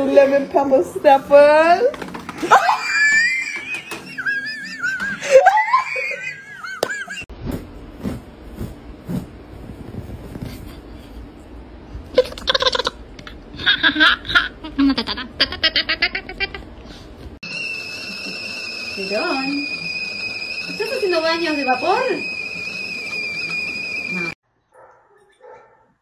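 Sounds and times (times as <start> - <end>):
high wavering vocal cries: 2.4 - 7.2.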